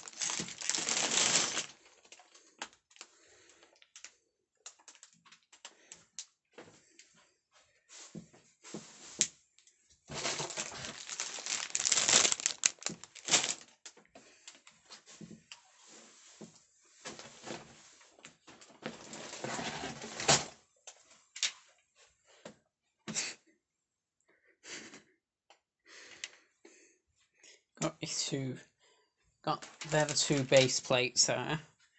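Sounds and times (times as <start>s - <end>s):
plastic bags crinkling: 0.0s - 3.1s, 10.1s - 13.9s, 29.6s - 30.9s.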